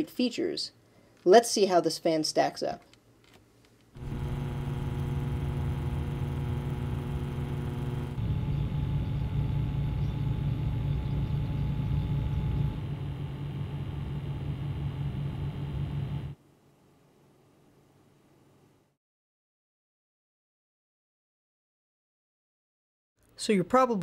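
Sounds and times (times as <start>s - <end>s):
computer fan humming with whine: 4.0s - 16.4s
computer fan whirring: 4.0s - 16.4s.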